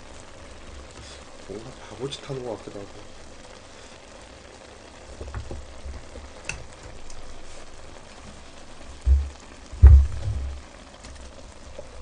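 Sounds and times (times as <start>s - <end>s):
water bubbling in a pot: 0.0s - 12.0s
dull thump: 9.0s - 10.6s.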